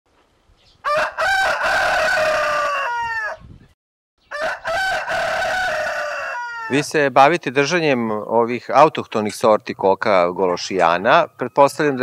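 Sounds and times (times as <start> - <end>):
rooster crowing: 0.8 - 3.5, 4.2 - 6.9.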